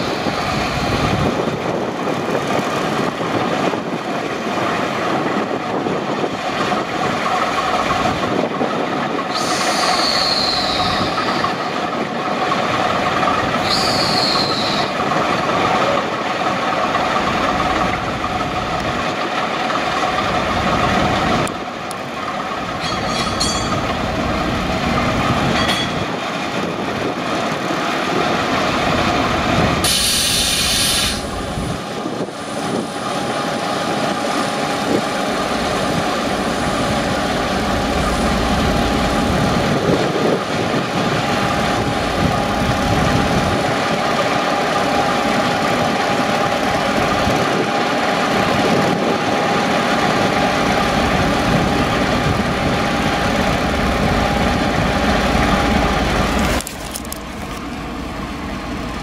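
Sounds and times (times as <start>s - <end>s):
diesel locomotive engine: 0.0s - 59.0s
wheel and rail noise: 0.0s - 59.0s
brief hiss: 29.8s - 31.3s.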